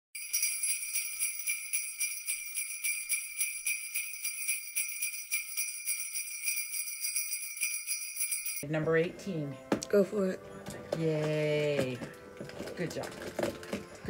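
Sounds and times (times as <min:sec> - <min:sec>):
jingle bells shaken: 0:00.2 - 0:08.7.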